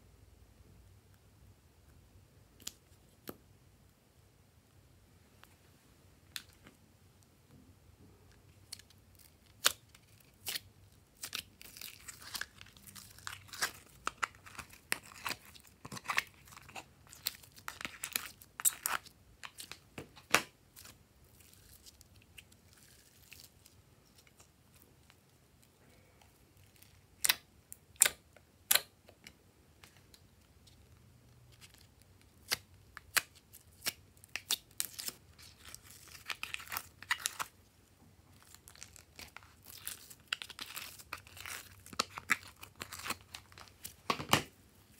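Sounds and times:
slime crackling and popping: 8.6s - 25.2s, 31.6s - 37.6s, 38.3s - 44.0s.

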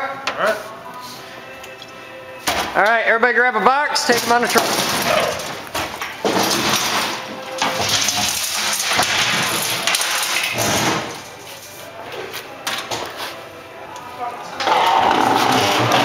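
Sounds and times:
sheet metal scraping and rattling: 4.0s - 11.8s.

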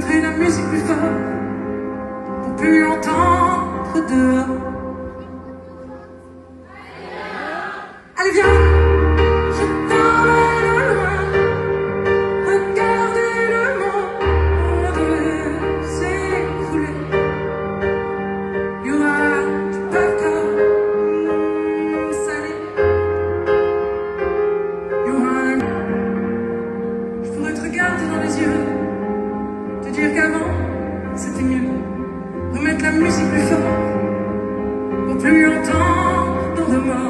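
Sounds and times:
woman singing: 0.0s - 1.5s, 2.5s - 17.4s, 18.8s - 22.9s, 25.0s - 25.8s, 27.2s - 29.0s, 29.8s - 34.1s, 35.1s - 37.0s
grand piano: 0.0s - 37.0s.

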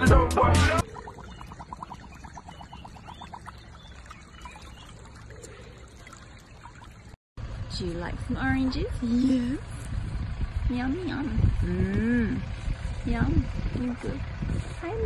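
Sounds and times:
water trickling and gurgling: 0.8s - 7.2s.

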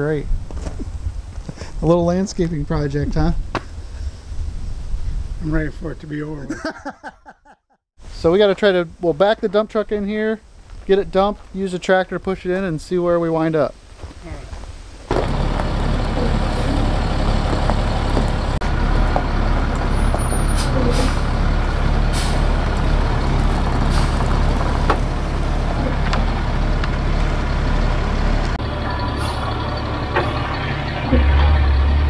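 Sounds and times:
diesel truck engine running: 15.1s - 32.0s.

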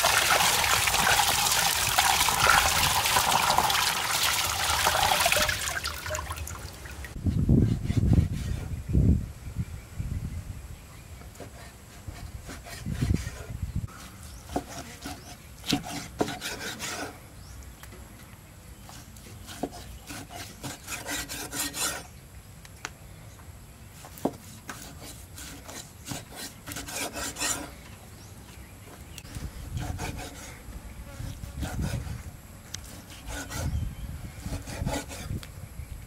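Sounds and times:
cleaver sawing through meat: 11.6s - 17.2s, 19.0s - 22.1s, 24.4s - 27.7s, 29.4s - 30.6s, 31.2s - 32.2s, 32.9s - 33.8s, 34.4s - 35.4s.

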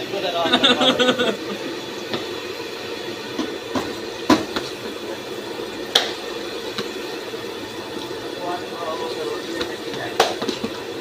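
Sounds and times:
fish sizzling in hot oil: 0.0s - 11.0s.

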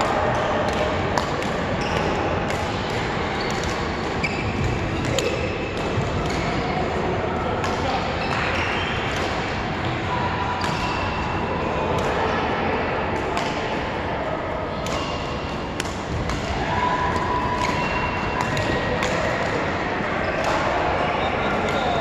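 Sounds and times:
racket hitting shuttlecock: 14.8s - 19.5s.

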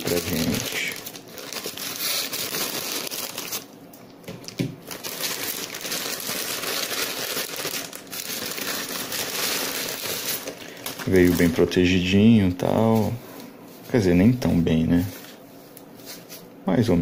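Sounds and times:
plastic tearing: 0.0s - 3.7s, 4.4s - 11.8s
plastic bag crinkling: 0.0s - 12.2s.

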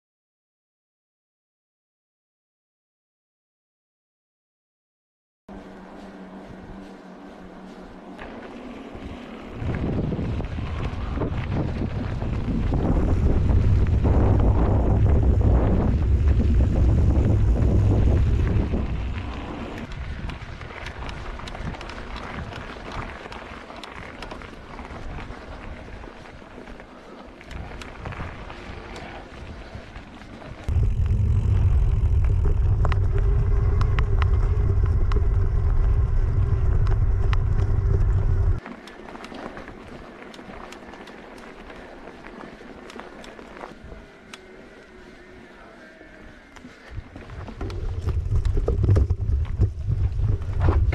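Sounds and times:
bike tyre rumble: 5.5s - 50.9s
wind buffeting microphone: 6.3s - 26.6s, 27.4s - 38.6s, 46.4s - 50.9s
faint steady hum: 25.9s - 50.9s
small clicks: 30.6s - 44.5s.

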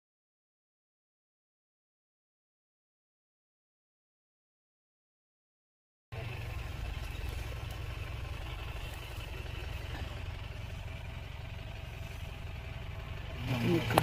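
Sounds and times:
vehicle engine idling: 6.1s - 14.0s.

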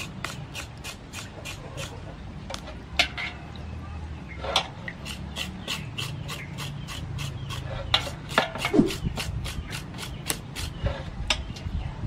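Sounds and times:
knife scraping pork skin: 0.0s - 2.0s, 4.9s - 11.1s.

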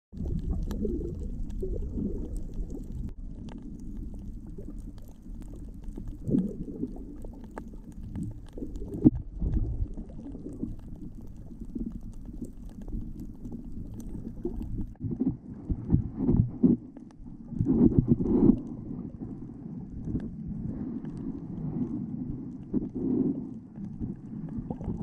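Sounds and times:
underwater rumbling water: 0.1s - 25.0s
faint clicks: 0.2s - 15.0s.

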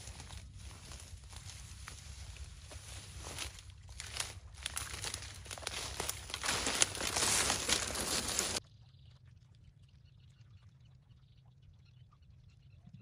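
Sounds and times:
footsteps in dry grass: 0.0s - 8.6s
stems crackling and snapping: 0.0s - 8.6s.

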